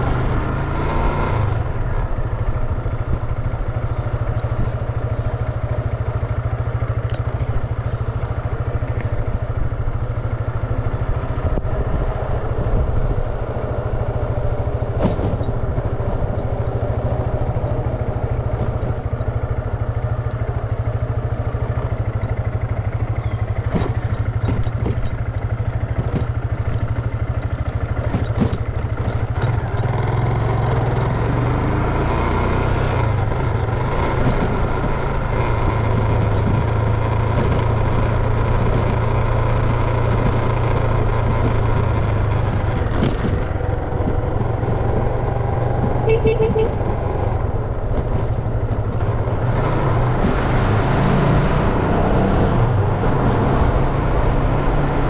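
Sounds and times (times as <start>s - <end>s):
motorcycle engine running: 0.0s - 55.0s
wind rushing over microphone: 11.2s - 19.2s.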